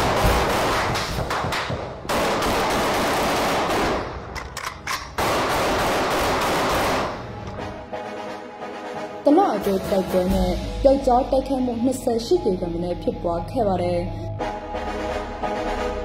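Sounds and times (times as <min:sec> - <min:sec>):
automatic rifle fire: 0:00.0 - 0:07.4.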